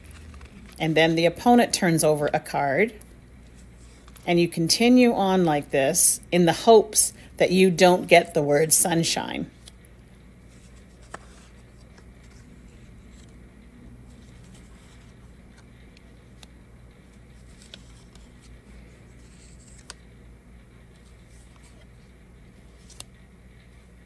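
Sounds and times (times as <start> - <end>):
playing cards sliding and flipping: 0.0 - 1.6, 3.4 - 4.2, 10.4 - 20.1, 20.9 - 23.2
steady low hum: 0.0 - 24.0.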